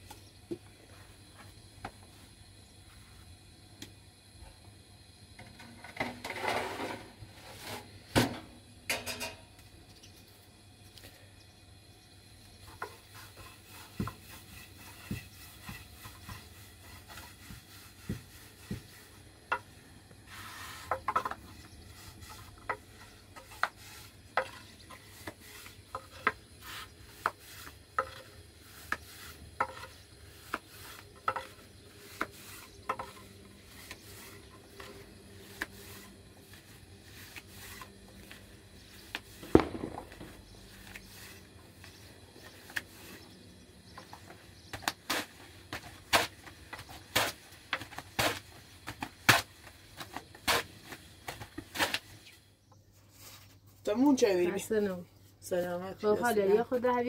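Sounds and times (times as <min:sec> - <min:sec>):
sharp knock at griddle: 0:39.4 - 0:40.6.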